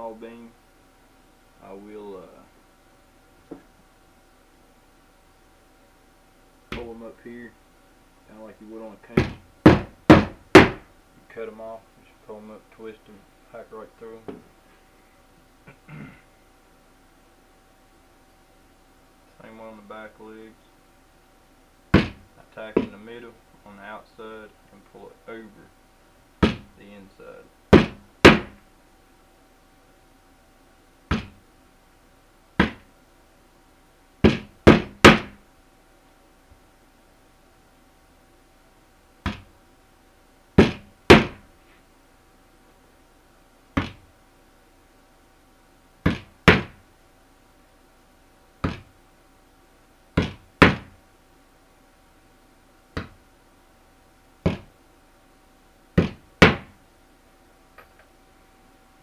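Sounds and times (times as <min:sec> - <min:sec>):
hammer striking nails: 0:09.2 - 0:10.8, 0:27.7 - 0:28.6, 0:34.2 - 0:35.4, 0:40.6 - 0:41.4, 0:46.1 - 0:46.8, 0:50.2 - 0:50.9, 0:56.0 - 0:56.7.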